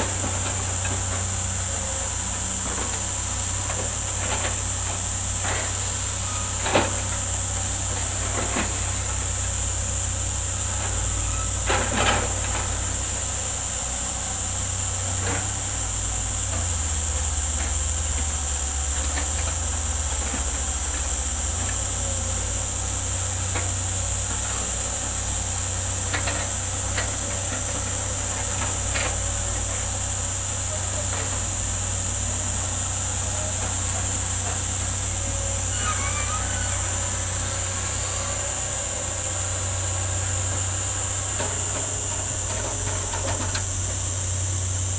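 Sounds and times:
diesel engines rumbling: 0:00.0 - 0:44.9
high-pitched insect buzz: 0:28.5 - 0:43.7.

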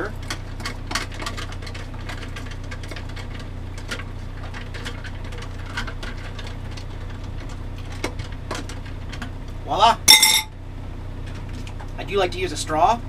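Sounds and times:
low hum: 0:00.0 - 0:12.0
spoon clinking ice in plastic cup: 0:10.1 - 0:10.5.

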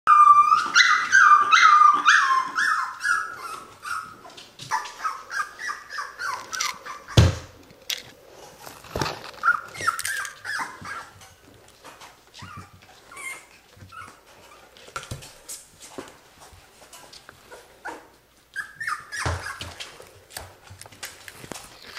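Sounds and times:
puppy yipping and barking: 0:00.1 - 0:07.3, 0:09.4 - 0:11.2, 0:17.8 - 0:19.8.

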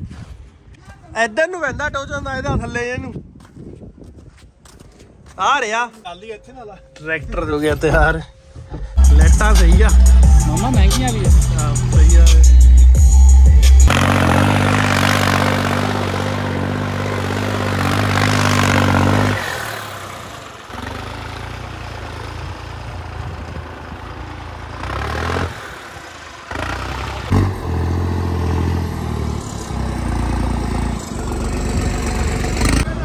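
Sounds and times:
vehicle engine running: 0:08.9 - 0:33.0.

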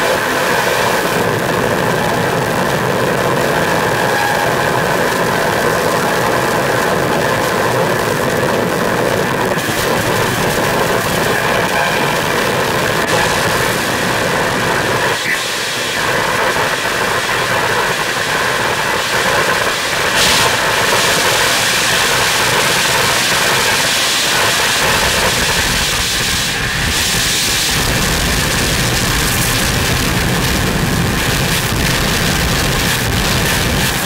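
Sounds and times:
harsh electronic noise music: 0:00.0 - 0:34.0
deep rumbling bass: 0:01.0 - 0:15.2, 0:26.6 - 0:34.0.

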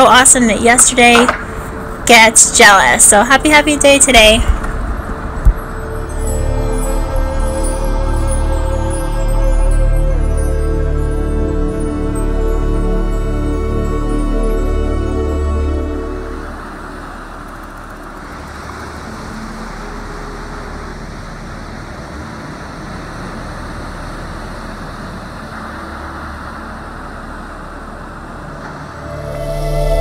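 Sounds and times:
ocean waves breaking on beach: 0:15.6 - 0:29.3.

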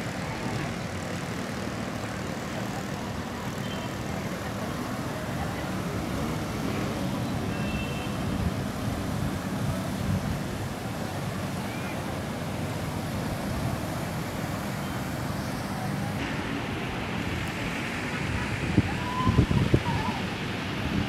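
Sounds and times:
traffic on wet street: 0:00.0 - 0:21.0.

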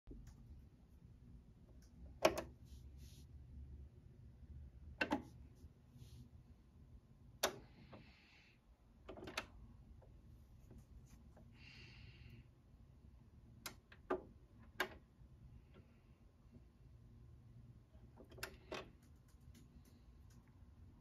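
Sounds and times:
low steady hum: 0:00.1 - 0:21.0.

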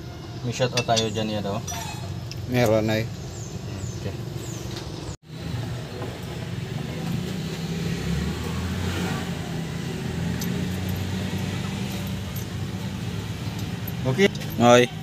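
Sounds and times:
vehicle engine idling: 0:09.3 - 0:15.0.

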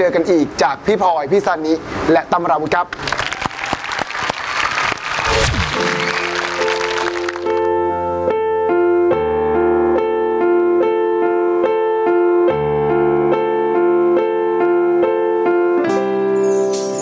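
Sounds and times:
low bass notes: 0:05.2 - 0:07.8
piano playing notes: 0:05.7 - 0:17.0.

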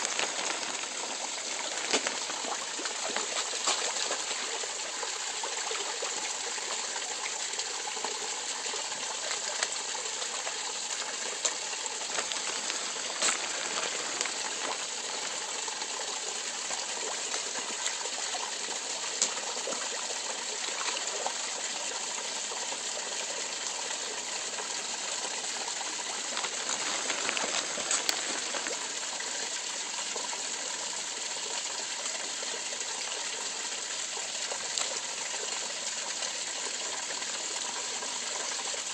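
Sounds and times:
water rushing: 0:00.0 - 0:38.9.

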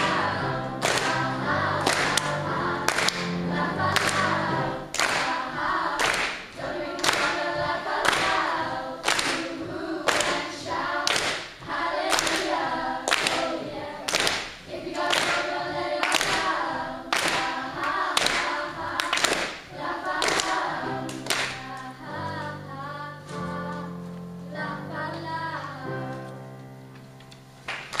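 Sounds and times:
choir singing: 0:00.0 - 0:26.5
sharp hand claps: 0:00.8 - 0:01.2, 0:01.8 - 0:03.3, 0:05.0 - 0:05.4, 0:06.0 - 0:07.4, 0:09.0 - 0:09.5, 0:11.1 - 0:11.5, 0:12.1 - 0:13.4, 0:14.1 - 0:15.4, 0:17.1 - 0:17.5, 0:18.2 - 0:19.6, 0:20.2 - 0:21.6, 0:27.7 - 0:28.0.

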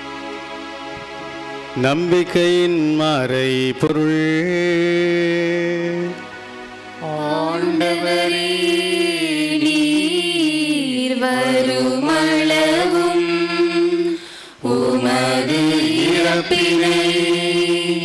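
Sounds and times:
held accompanying notes: 0:00.0 - 0:18.0
voices chanting a melody: 0:07.0 - 0:18.0.

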